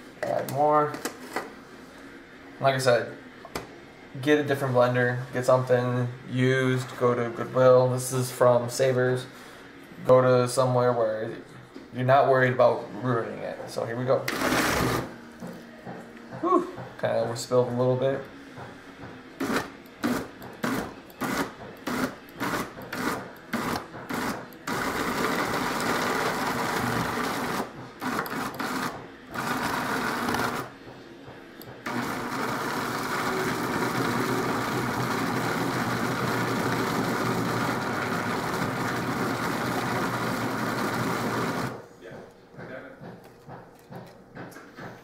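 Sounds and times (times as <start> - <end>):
electric chopper chopping food: 14.3 - 15.1, 19.4 - 30.7, 31.8 - 41.8.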